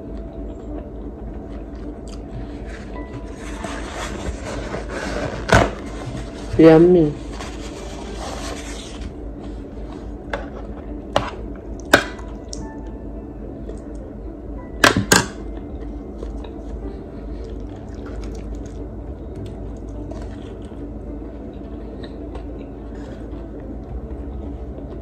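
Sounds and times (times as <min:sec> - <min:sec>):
soft chewing: 0:00.0 - 0:03.6, 0:15.5 - 0:25.0.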